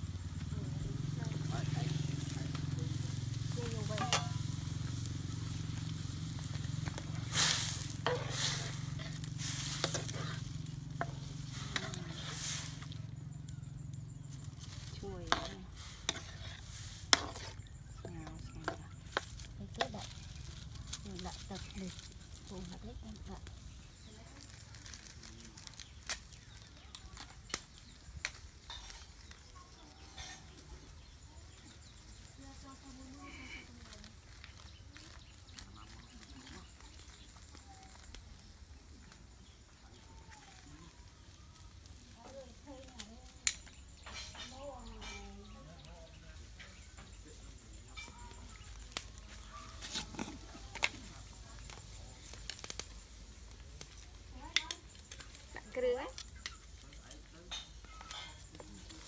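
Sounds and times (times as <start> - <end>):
food sizzling in a wok: 0.0 - 59.0
rustling: 0.2 - 59.0.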